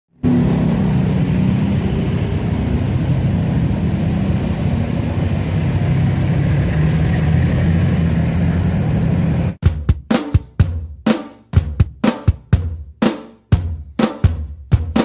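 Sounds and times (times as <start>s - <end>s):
road noise: 0.1s - 9.6s
motorcycle engine running: 0.2s - 10.0s.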